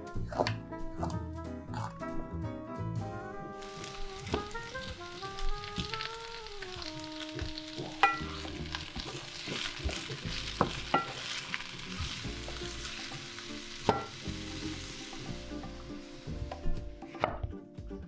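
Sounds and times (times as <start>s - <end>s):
vegetables sizzling in oil: 3.6s - 16.8s.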